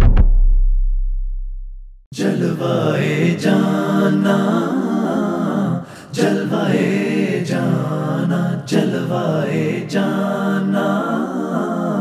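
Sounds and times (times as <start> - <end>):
deep boom: 0.0 - 2.0
person singing a cappella: 2.1 - 12.0.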